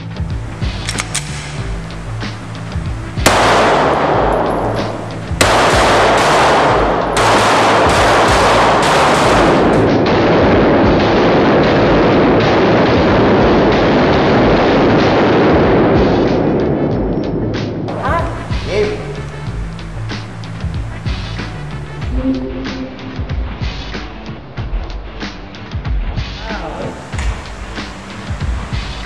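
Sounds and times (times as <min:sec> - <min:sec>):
gunshots echoing off concrete: 0:00.6 - 0:16.6.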